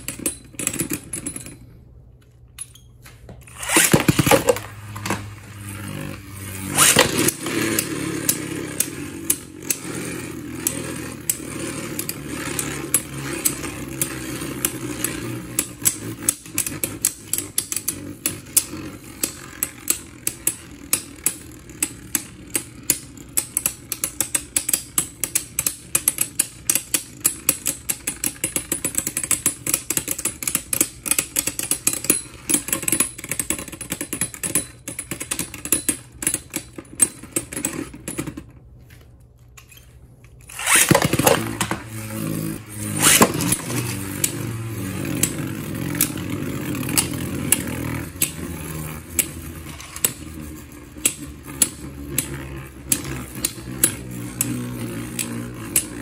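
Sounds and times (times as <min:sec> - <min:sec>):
spinning tops whirring hum: 0:03.0 - 0:38.6, 0:39.4 - 0:56.0
spinning tops knocking clicks: 0:03.4 - 0:09.9, 0:40.3 - 0:56.0
spinning top landing clack: 0:03.4 - 0:38.6, 0:40.3 - 0:56.0.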